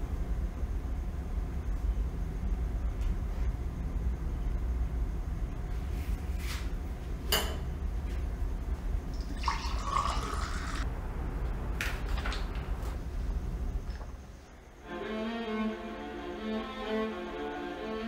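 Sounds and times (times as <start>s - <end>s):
low rumbling drone: 8.6s - 18.0s.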